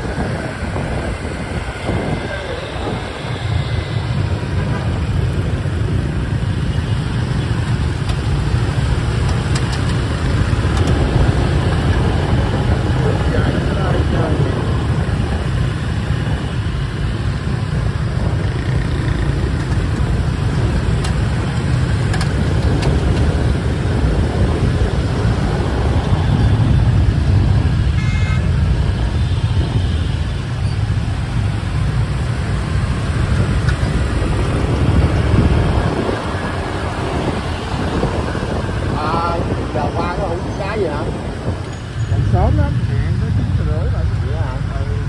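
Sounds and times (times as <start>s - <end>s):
motorbike and scooter traffic: 0.0s - 45.0s
horn beep: 28.0s - 28.5s.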